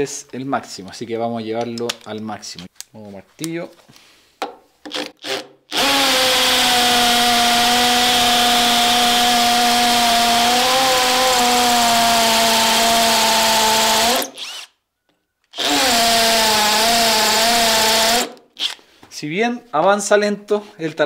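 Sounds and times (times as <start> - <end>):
hammer drill boring into concrete: 4.9 - 14.8, 15.5 - 18.8.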